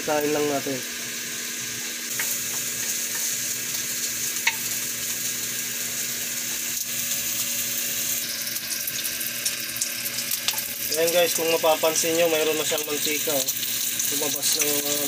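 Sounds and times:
pork fat sizzling in a wok: 0.0 - 15.0
spatula tapping a pan: 4.4 - 4.7.

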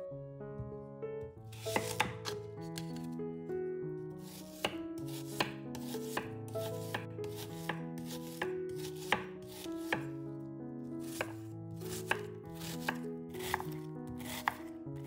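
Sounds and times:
soft background music: 0.0 - 15.0
knife chopping on cutting board: 1.5 - 3.1, 4.2 - 10.1, 11.0 - 14.7.

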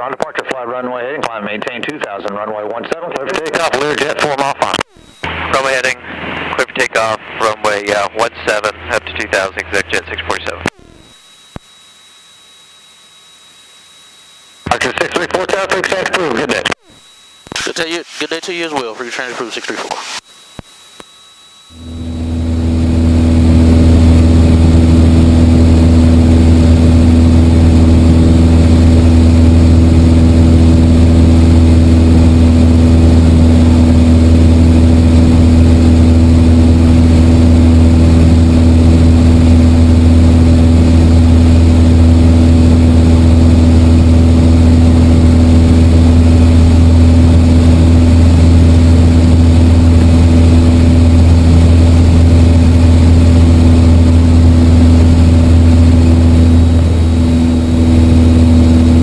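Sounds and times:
aircraft engine and propeller droning: 21.2 - 59.0.

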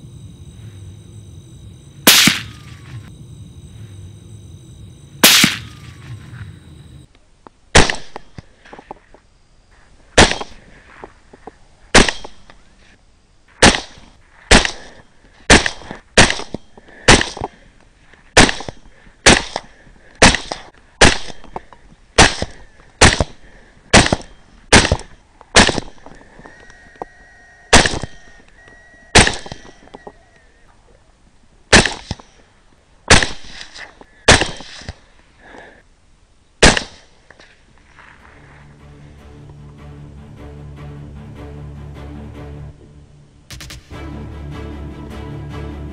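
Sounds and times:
rifle shots echoing: 2.0 - 2.9, 5.2 - 6.2.

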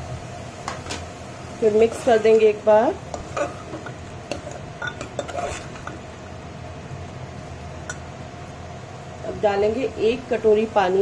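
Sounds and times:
metal spoon scraping a pot: 3.1 - 6.1.

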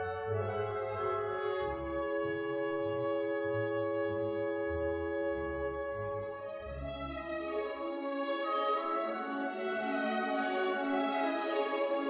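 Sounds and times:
orchestral music sustained chord: 6.0 - 12.0.

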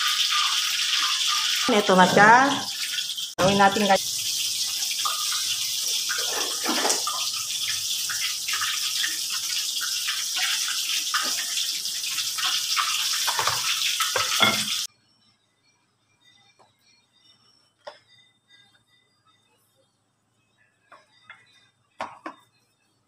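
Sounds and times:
running water hiss: 0.0 - 14.9
kitchen knocks and handling: 22.0 - 22.4.

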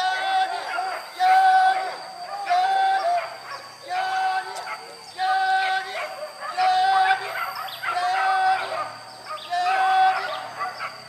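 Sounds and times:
hunting dogs baying: 0.0 - 11.0.

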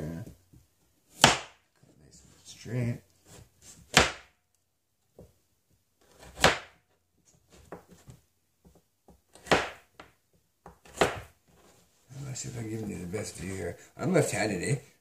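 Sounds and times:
knife chopping on cutting board: 1.1 - 1.6, 3.3 - 4.3, 6.0 - 6.8, 9.3 - 11.3.

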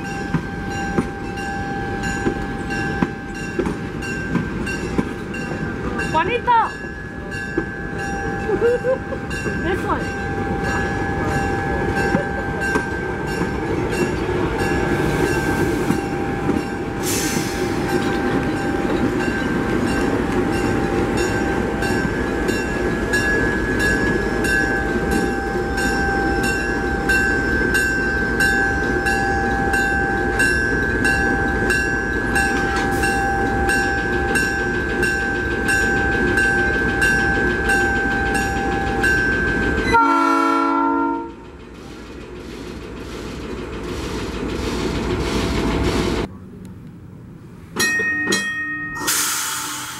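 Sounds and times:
bell ringing: 0.0 - 17.0, 47.8 - 49.8
train rumbling past: 0.0 - 48.0, 49.0 - 49.9
air hiss: 17.0 - 17.8.

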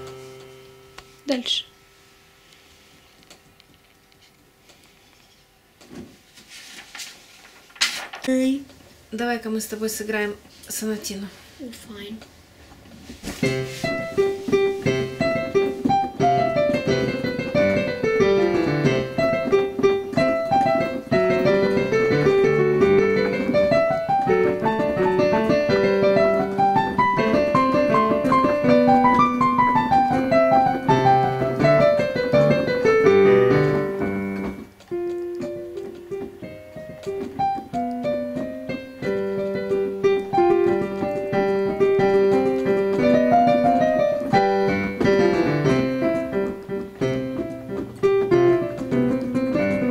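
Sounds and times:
electronic piano piece: 0.0 - 1.9, 13.4 - 49.9.

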